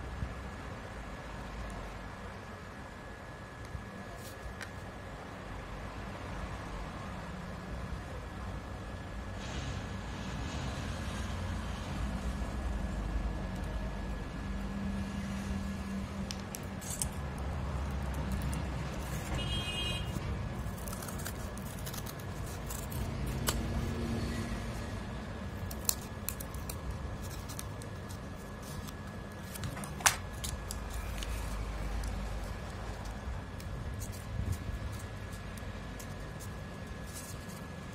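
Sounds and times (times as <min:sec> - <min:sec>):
scissors cutting cardboard: 0:16.3 - 0:37.9.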